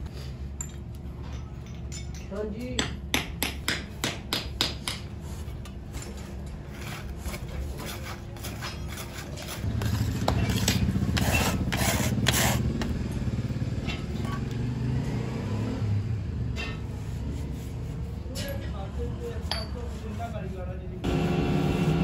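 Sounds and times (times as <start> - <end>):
sand scraping and rubbing: 6.6 - 12.7, 16.8 - 20.8
low engine-like drone: 21.0 - 22.0.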